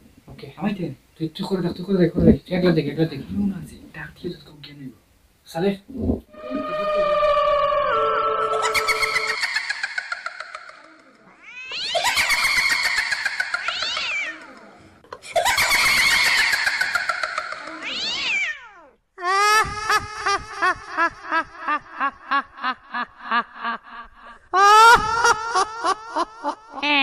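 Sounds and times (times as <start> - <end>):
cat yowling: 6.4 - 9.6, 11.3 - 12.8, 13.6 - 14.7, 17.7 - 19.0.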